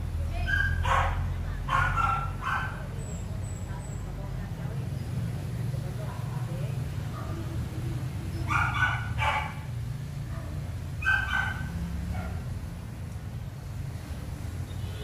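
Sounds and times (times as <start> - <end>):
dog yipping: 0.4 - 2.8, 8.4 - 9.6, 10.3 - 12.4.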